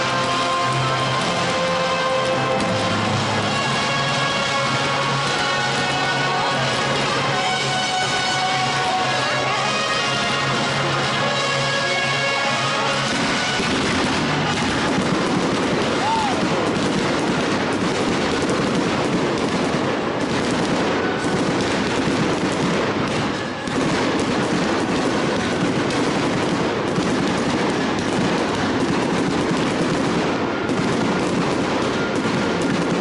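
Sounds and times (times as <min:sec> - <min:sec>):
fireworks bangs and crackle: 0:00.0 - 0:33.0.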